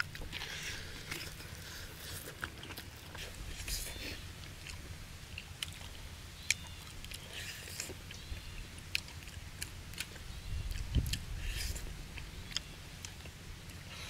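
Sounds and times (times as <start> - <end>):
people chewing: 0.0 - 14.0
sharp clicks and wet smacks: 4.6 - 7.2, 7.8 - 13.9.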